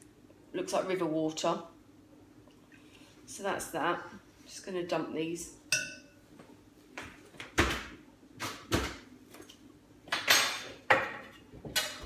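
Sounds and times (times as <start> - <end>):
kitchen knocks and thuds: 7.4 - 9.1
kitchen clatter: 10.1 - 12.0.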